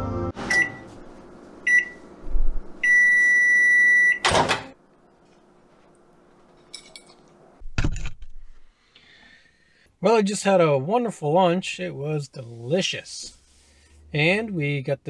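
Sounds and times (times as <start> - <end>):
microwave oven humming: 0.0 - 7.6
microwave beeping: 0.3 - 0.9, 1.6 - 2.1, 2.8 - 4.7.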